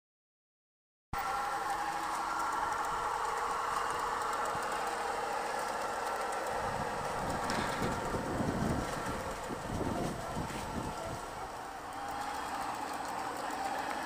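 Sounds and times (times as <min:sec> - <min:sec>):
model locomotive humming: 0:01.2 - 0:14.0
wind rumble on microphone: 0:06.6 - 0:11.6.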